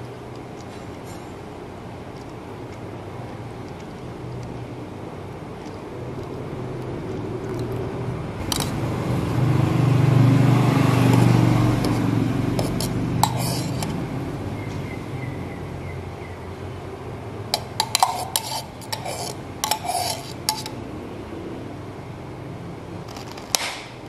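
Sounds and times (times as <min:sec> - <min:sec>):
spoon clinking on metal pitcher: 0:08.4 - 0:08.8, 0:12.6 - 0:14.0, 0:17.6 - 0:20.8.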